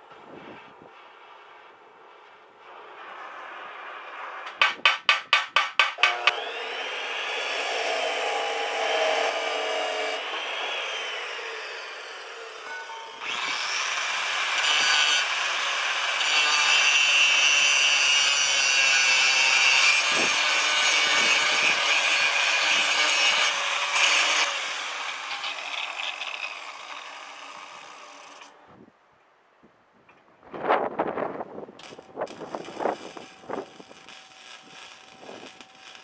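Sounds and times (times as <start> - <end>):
angle grinder grinding steel: 6.0 - 28.6, 31.8 - 36.0.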